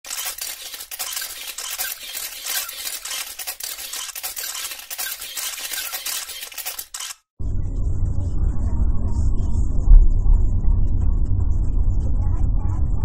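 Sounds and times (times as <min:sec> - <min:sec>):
scratchy crackling noise: 0:00.0 - 0:07.2.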